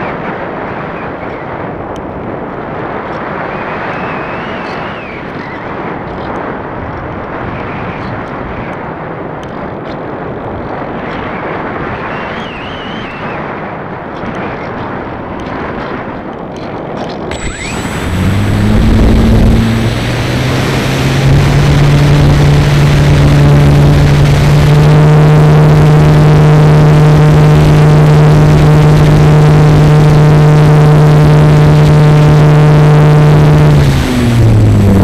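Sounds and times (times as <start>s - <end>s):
wind rushing over microphone: 0.0s - 35.0s
faint wavering high whine: 17.3s - 35.0s.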